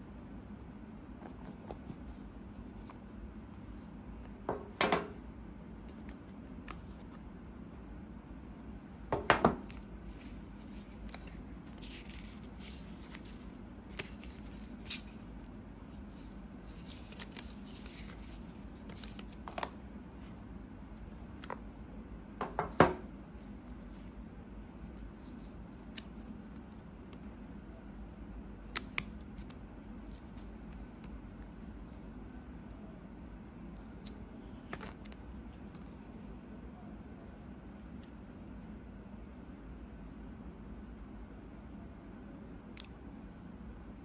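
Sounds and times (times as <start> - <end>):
low room hum: 0.0 - 44.0
card and paper rustling: 10.1 - 19.8.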